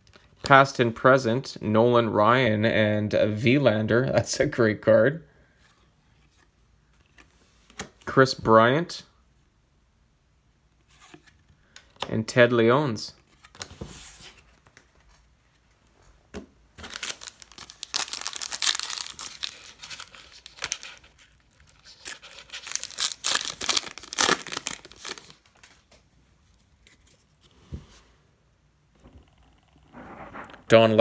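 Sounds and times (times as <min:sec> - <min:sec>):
card wrapper ripping and crinkling: 0:16.8 - 0:25.9.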